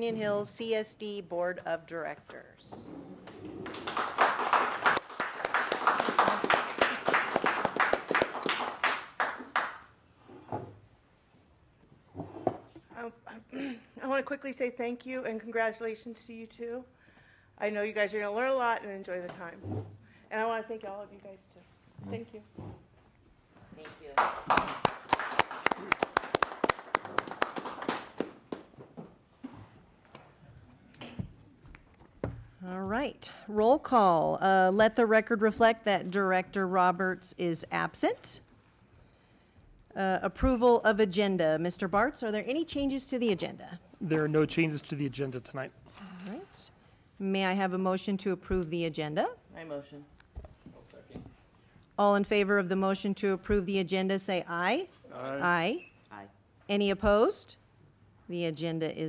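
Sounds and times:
small group clapping: 3.6 - 10.0, 23.8 - 29.0.

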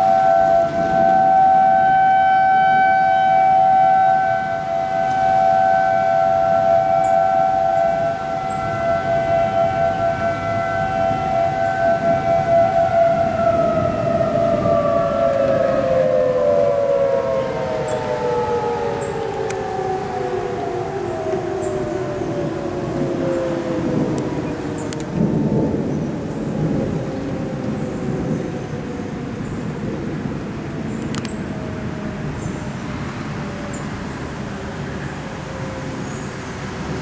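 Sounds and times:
warning sirens wailing: 0.0 - 37.0.

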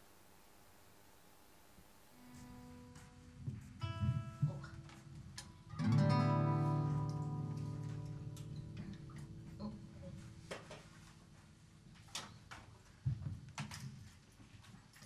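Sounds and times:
acoustic guitar notes and chord: 2.2 - 11.2.

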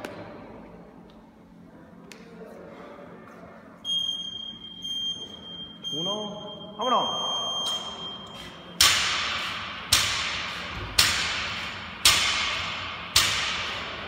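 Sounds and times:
timer beep: 3.8 - 8.5.

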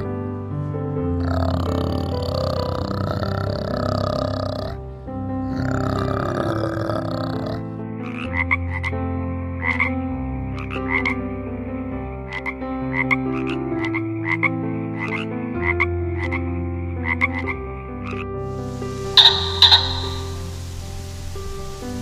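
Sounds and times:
soft music chords: 0.0 - 22.0
clicky animal calls: 18.8 - 20.8.

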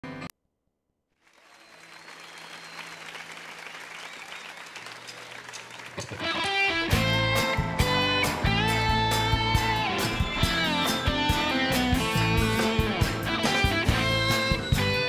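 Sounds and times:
audience applause: 1.2 - 7.0
guitar music: 6.2 - 15.0.

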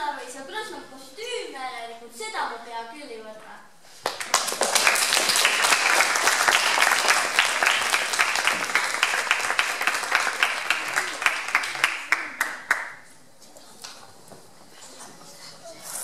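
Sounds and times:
audience applauding: 4.0 - 13.1.

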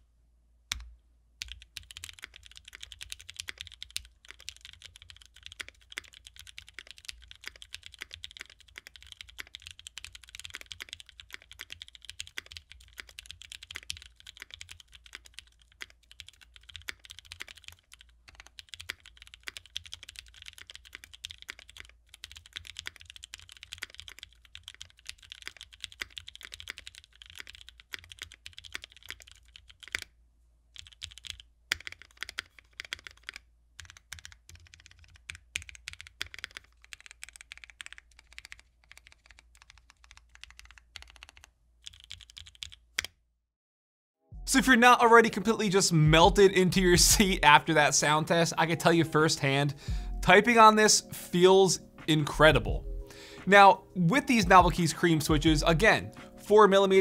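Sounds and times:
fast typing on mechanical keyboard: 1.4 - 30.1, 30.8 - 43.1.

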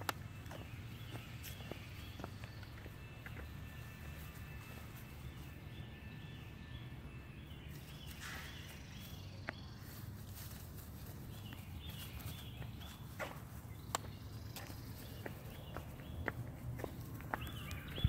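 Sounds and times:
footsteps on grass and leaves: 0.0 - 6.2, 7.7 - 18.0.

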